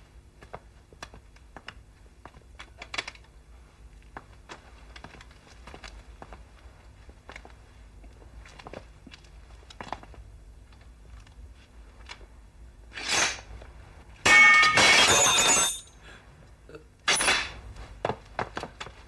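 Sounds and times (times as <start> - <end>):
swords clashing: 13.0 - 13.5, 14.2 - 16.0, 17.1 - 17.6
metallic crash with ringing: 14.2 - 16.0.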